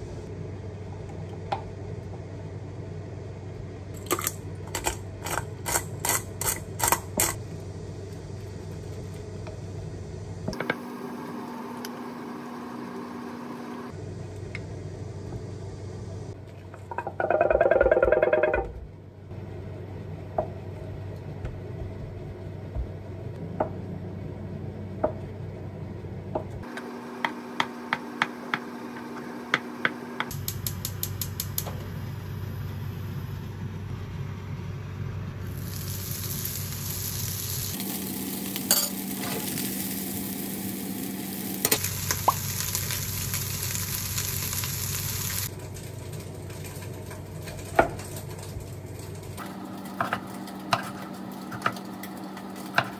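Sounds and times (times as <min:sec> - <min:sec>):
food sizzling in a pan: 0:35.4 - 0:45.5.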